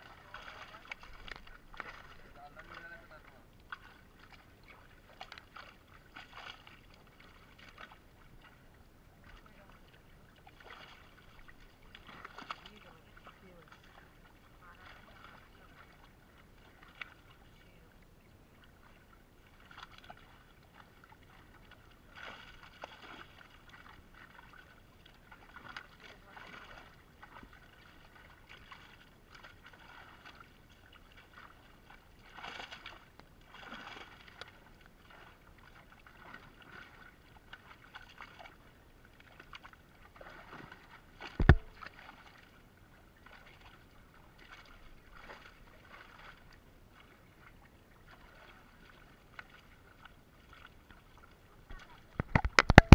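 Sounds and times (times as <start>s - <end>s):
water splashing and sloshing: 0.0s - 52.9s.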